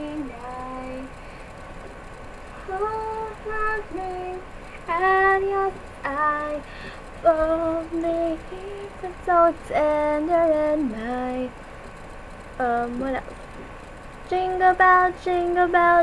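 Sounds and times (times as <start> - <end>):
woman singing unaccompanied: 0.0 - 1.2, 2.6 - 11.6, 12.6 - 13.3, 14.2 - 16.0.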